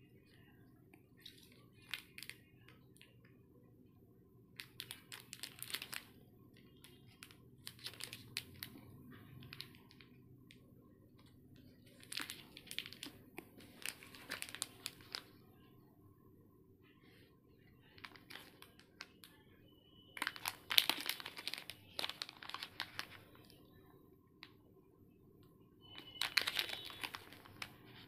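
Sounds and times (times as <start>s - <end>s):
plastic wrappers crinkling: 1.2s - 3.2s, 4.6s - 10.6s, 11.2s - 15.4s, 17.8s - 19.4s, 20.2s - 23.6s, 25.9s - 28.0s.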